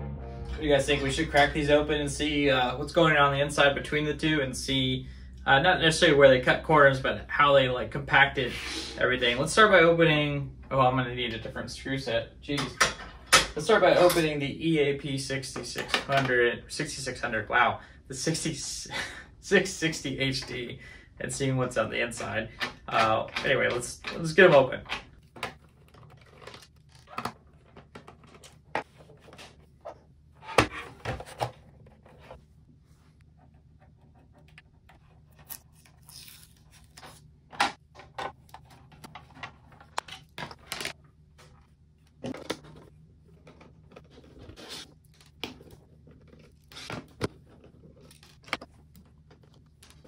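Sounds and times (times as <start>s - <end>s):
tools clicking and scraping plastic: 22.2s - 29.6s, 37.5s - 50.0s.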